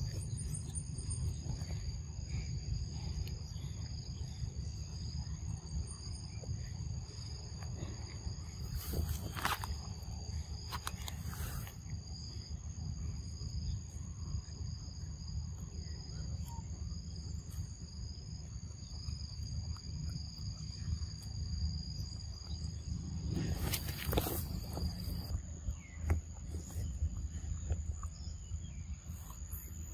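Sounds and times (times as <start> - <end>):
insects chirring: 0.0 - 29.9.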